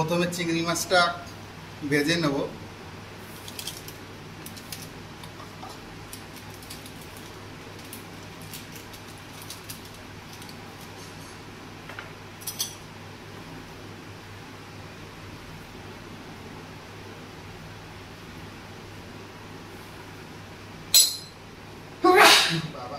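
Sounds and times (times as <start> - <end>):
oil crackling: 3.3 - 11.0.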